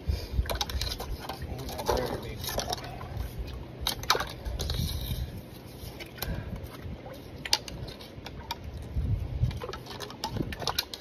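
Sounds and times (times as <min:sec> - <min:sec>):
hook scraping in mud: 0:03.8 - 0:06.3.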